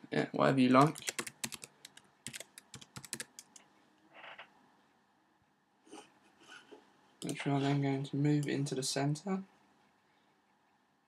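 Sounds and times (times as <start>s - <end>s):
faint keyboard typing: 0.7s - 4.5s, 7.2s - 7.5s, 8.3s - 8.7s.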